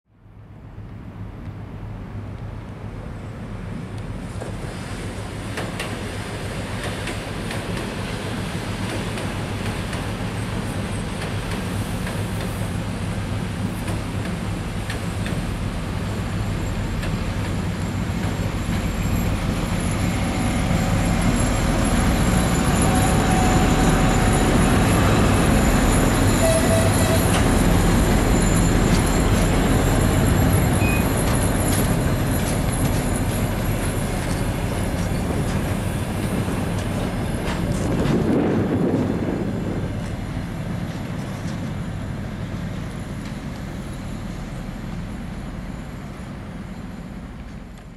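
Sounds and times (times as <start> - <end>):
diesel locomotive engines: 0.2 - 47.9
wheels rumbling on rails: 0.4 - 47.9
high wheel squeal: 17.8 - 36.0.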